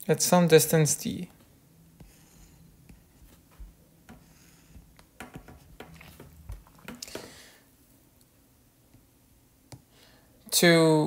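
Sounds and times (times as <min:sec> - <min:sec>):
stylus scratchy strokes: 0:02.0 - 0:03.5, 0:04.1 - 0:06.3.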